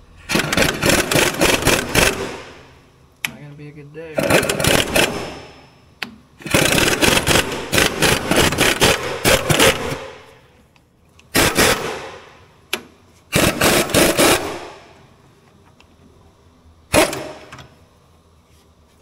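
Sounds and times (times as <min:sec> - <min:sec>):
air impact wrench hammering: 0:00.2 - 0:02.8, 0:04.2 - 0:10.4, 0:11.3 - 0:15.0, 0:16.9 - 0:17.6.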